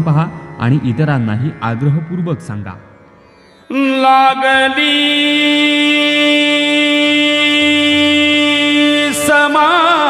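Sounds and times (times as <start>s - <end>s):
harmonium: 0.0s - 10.0s
man singing: 3.7s - 10.0s.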